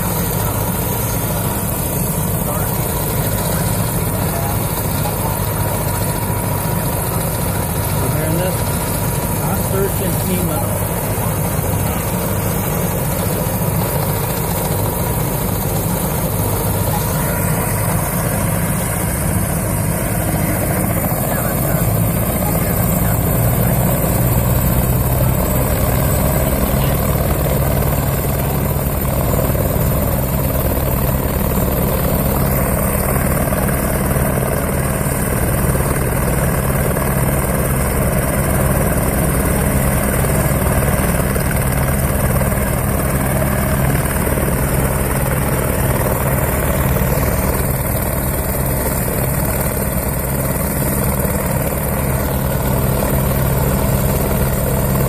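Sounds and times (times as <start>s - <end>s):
helicopter running: 0.0s - 55.0s.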